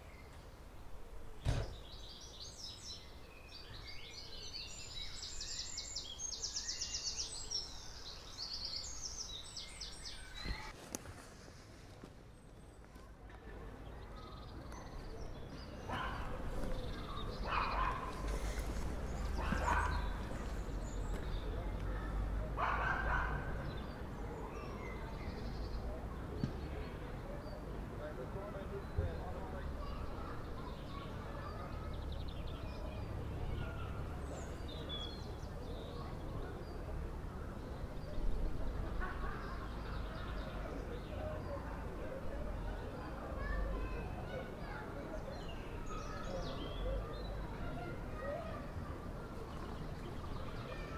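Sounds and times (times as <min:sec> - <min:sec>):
songbirds singing: 0:00.0 - 0:11.0, 0:12.2 - 0:50.9
short thump: 0:01.4 - 0:01.9.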